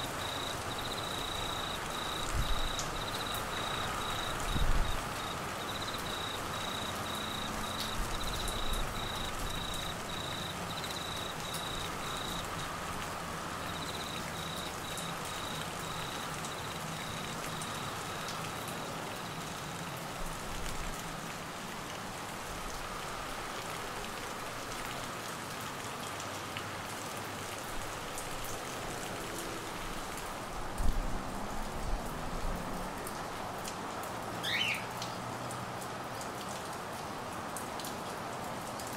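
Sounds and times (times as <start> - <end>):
cricket chirping: 0.0 - 19.5
heavy rain on trees and grass: 0.0 - 38.9.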